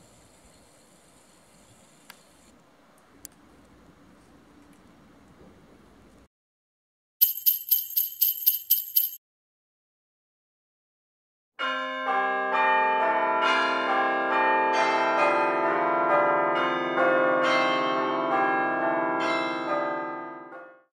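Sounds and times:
bells ringing a peal: 11.6 - 20.8.

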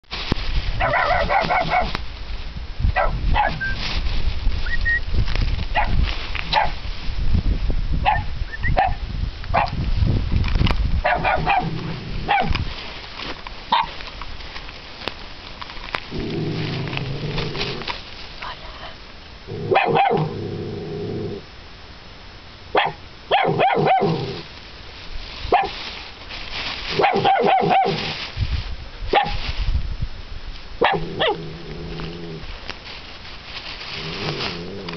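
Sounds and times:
low rumble on microphone: 0.1 - 13.0, 16.0 - 21.8, 26.6 - 34.9
dogs barking and yelping: 0.8 - 2.0, 3.0 - 3.7, 8.0 - 9.0, 11.0 - 12.6, 13.7 - 14.0, 19.7 - 20.4, 22.8 - 24.4, 27.0 - 28.0, 29.2 - 29.4, 30.8 - 31.5.

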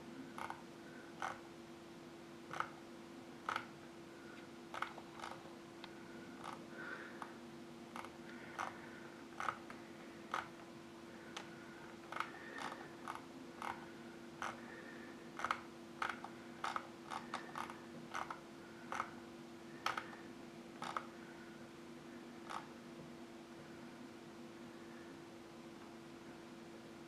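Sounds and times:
faint low hum: 0.0 - 27.0
mouse scroll wheel clicking: 0.4 - 0.6, 2.5 - 2.8, 3.5 - 3.7, 4.7 - 5.4, 9.4 - 9.7, 10.3 - 10.5, 12.1 - 13.8, 14.4 - 14.6, 15.4 - 19.1, 19.8 - 20.2, 20.8 - 21.1.

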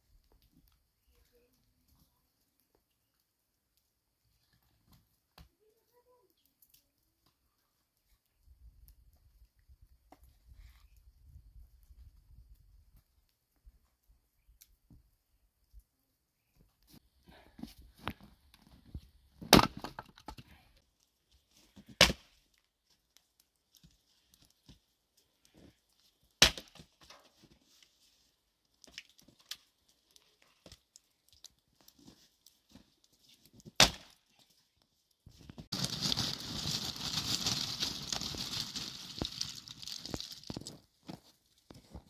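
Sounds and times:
hatchet chopping wood: 19.5 - 20.0
rustling plastic sack: 35.7 - 40.9.

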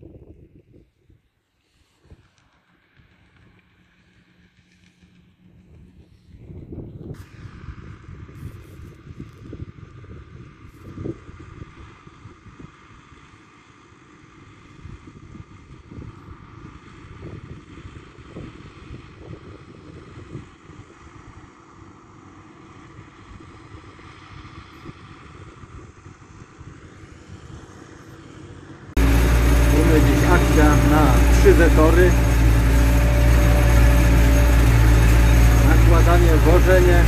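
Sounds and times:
distant tractor engine running: 2.2 - 6.8, 26.7 - 37.0
wind buffeting microphone: 5.6 - 12.7.

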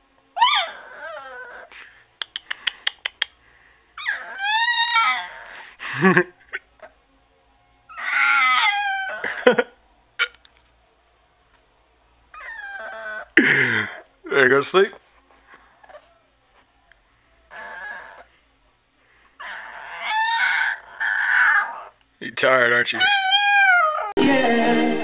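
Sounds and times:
puppy howling: 0.4 - 1.7, 4.0 - 5.6, 7.9 - 9.6, 12.3 - 14.1, 17.4 - 18.3, 19.4 - 22.0, 23.0 - 24.2.

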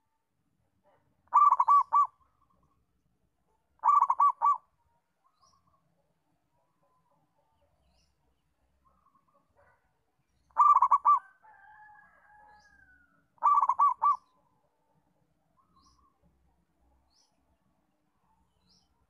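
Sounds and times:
dove cooing: 1.3 - 2.2, 3.8 - 4.7, 10.6 - 11.4, 13.4 - 14.3
small birds chirping: 1.3 - 2.8, 3.8 - 4.6, 5.2 - 5.9, 6.6 - 11.2, 12.5 - 14.6, 15.5 - 16.3, 17.0 - 17.6.

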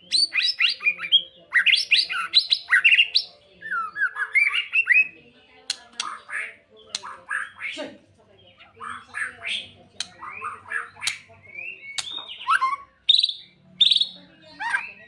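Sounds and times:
songbird singing: 0.0 - 15.0
bird clicking notes: 5.6 - 7.2, 11.0 - 12.3.

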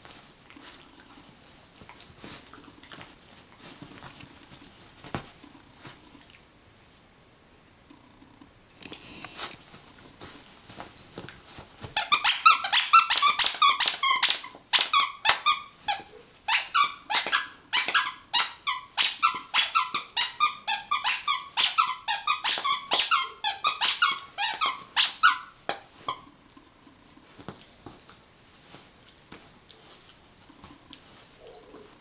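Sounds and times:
toy squeaker squeaking: 12.0 - 26.3.

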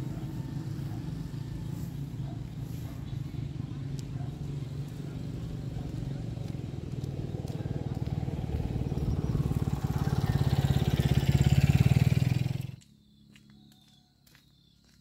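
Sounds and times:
small motorcycle engine running: 0.0 - 12.8.

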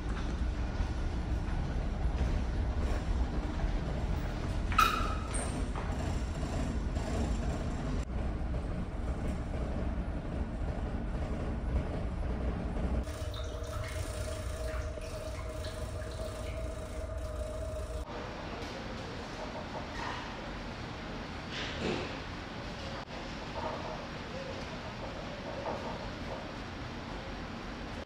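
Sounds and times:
ship engines rumbling: 0.0 - 18.5
steady hum: 12.3 - 18.4.

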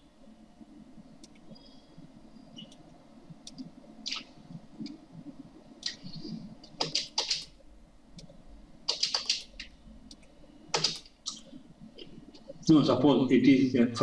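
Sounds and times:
faint low hum: 0.0 - 14.0
mouse and keyboard clicks: 5.8 - 7.5, 8.9 - 11.5.

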